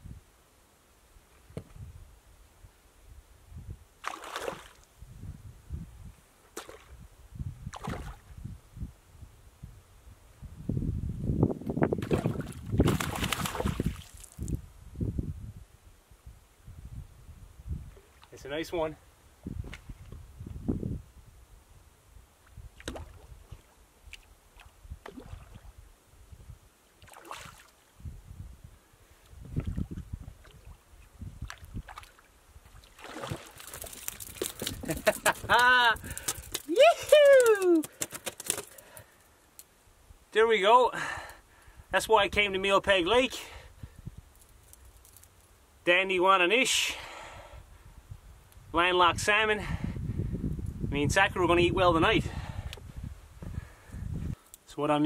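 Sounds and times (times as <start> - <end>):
fish splashing at water surface: 4.0 - 4.8, 12.0 - 14.4, 32.8 - 35.3.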